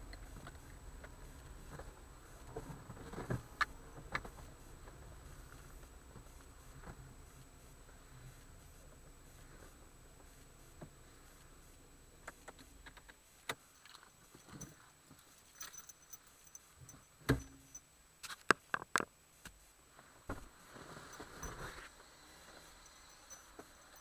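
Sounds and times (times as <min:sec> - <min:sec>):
faint steady hiss: 0:00.0 - 0:24.0.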